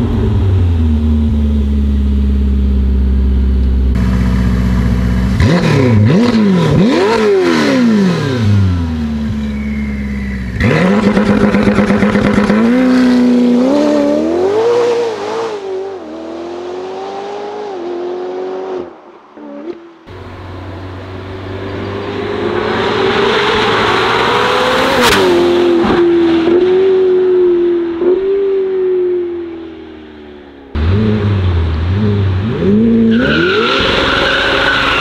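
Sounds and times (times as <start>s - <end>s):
sports car engine revving: 0.0s - 9.7s, 10.5s - 18.9s, 30.7s - 33.9s
exhaust crack: 8.9s - 13.0s.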